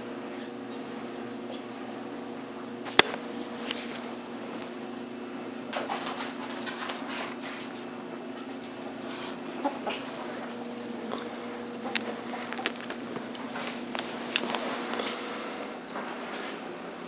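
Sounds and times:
steady low hum: 0.0 - 17.0
ferret clucking chuckles: 9.4 - 12.8.

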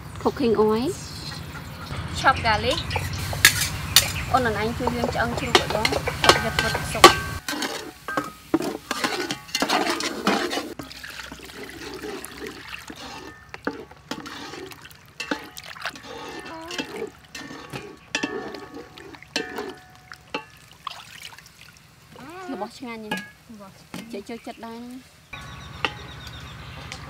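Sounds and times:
water sloshing in a bowl: 2.6 - 24.2
knocks against metal bowl: 4.8 - 7.4.

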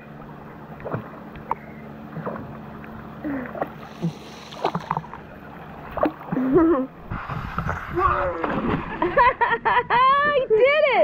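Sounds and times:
pool water lapping and splashing: 0.0 - 11.0.

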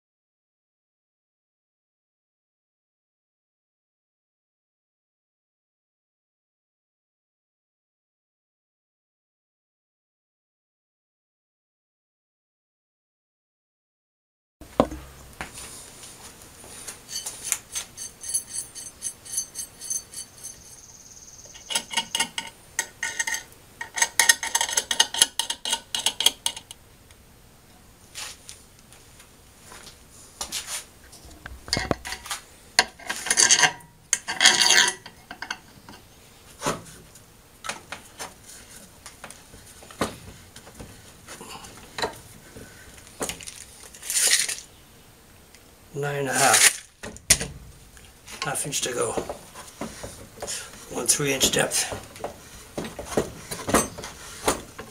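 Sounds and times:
metal tools clinking on wood: 17.0 - 20.9, 21.5 - 26.7, 31.7 - 36.0, 52.8 - 54.1.

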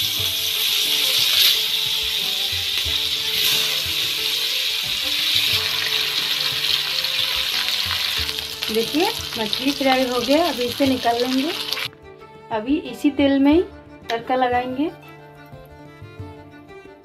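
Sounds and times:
fish sizzling in hot oil: 0.0 - 11.9.

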